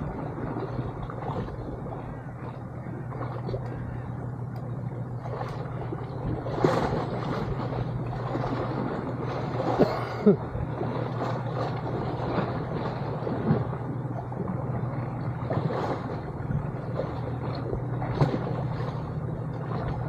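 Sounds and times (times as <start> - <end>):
wind on microphone: 0.0 - 4.0
steady low hum: 0.0 - 20.0
water washing in shallows: 0.0 - 20.0.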